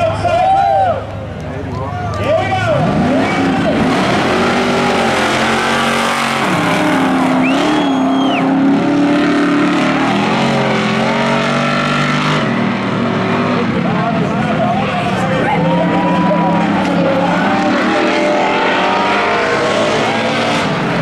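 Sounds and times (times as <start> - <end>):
racing engines at high revs: 2.2 - 21.0.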